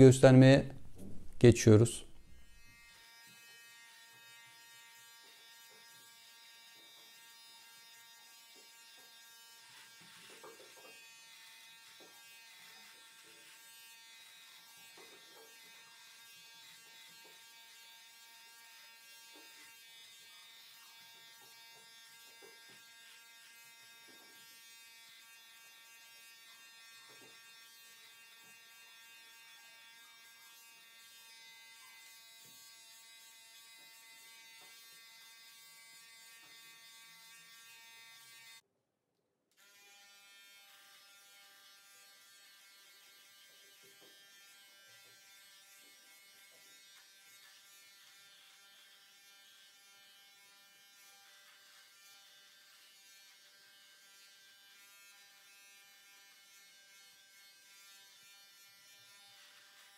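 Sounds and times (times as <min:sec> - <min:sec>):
beard trimmer buzzing: 0:02.2 - 0:38.6, 0:39.6 - 0:59.9.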